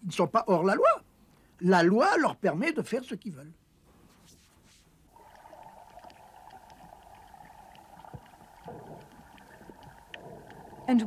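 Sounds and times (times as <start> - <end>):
muffled underwater rushing: 5.1 - 11.0.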